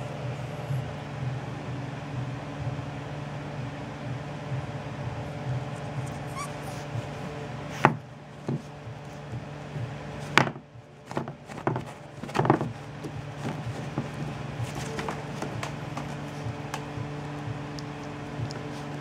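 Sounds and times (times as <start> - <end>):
steady low hum: 0.0 - 19.0
chew bone knocking on wooden floor: 10.3 - 16.9.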